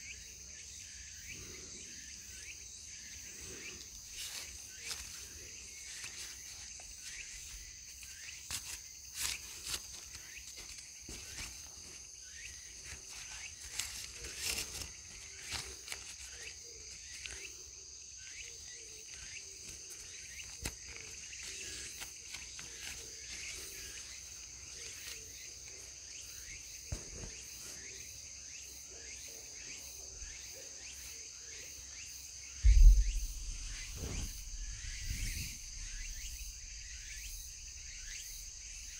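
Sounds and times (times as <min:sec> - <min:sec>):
crickets and insects trilling: 0:00.0 - 0:38.9
heavy low thump: 0:32.6 - 0:37.0.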